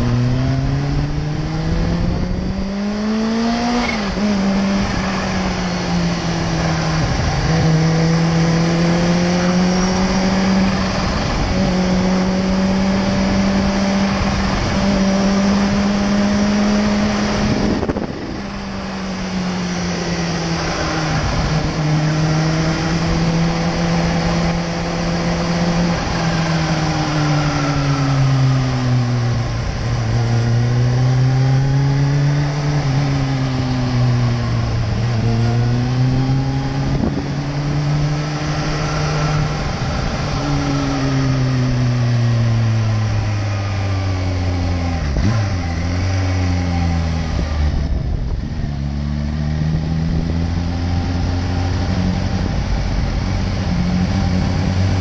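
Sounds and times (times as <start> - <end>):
motorcycle engine cruising: 0.0 - 55.0
wind noise: 0.0 - 55.0.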